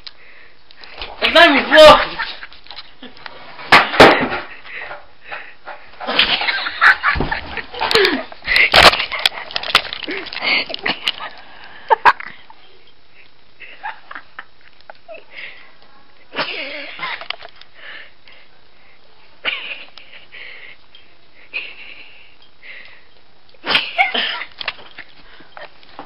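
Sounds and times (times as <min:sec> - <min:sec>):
boy laughing wheezily: 0:06.2 - 0:12.5.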